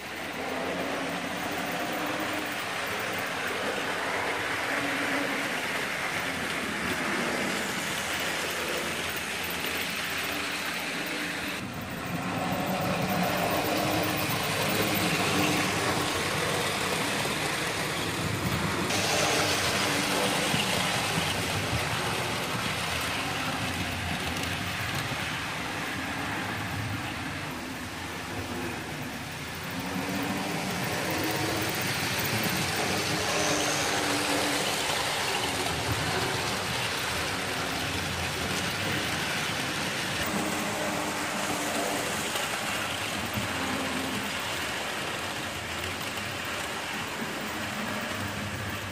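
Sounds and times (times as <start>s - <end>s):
model trains running: 0.0s - 48.9s.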